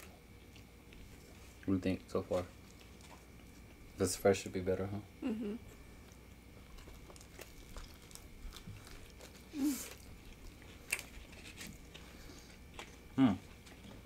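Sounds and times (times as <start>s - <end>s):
soft chewing: 0.0s - 4.0s, 5.7s - 14.0s
bite into taco: 6.7s - 12.0s.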